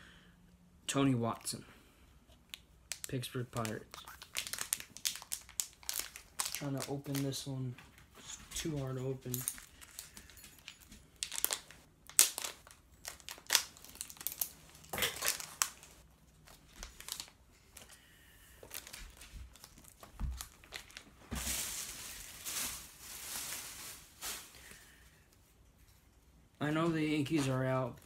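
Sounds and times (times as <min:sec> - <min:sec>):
wrapper crinkling and tearing: 0:02.9 - 0:07.4, 0:09.3 - 0:17.9, 0:18.6 - 0:24.8
wrapper rustling: 0:02.9 - 0:07.5, 0:08.2 - 0:18.0, 0:18.6 - 0:24.9.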